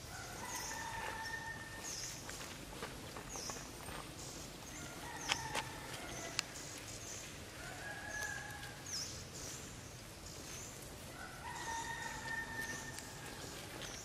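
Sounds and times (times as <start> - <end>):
birds chirping: 0.0 - 14.0
bird calls: 3.2 - 14.0.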